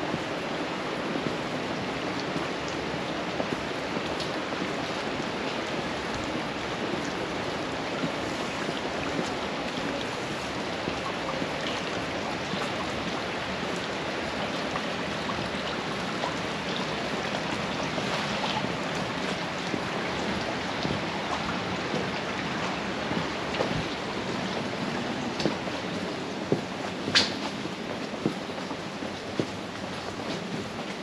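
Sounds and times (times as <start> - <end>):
steady rain falling: 0.0 - 31.0.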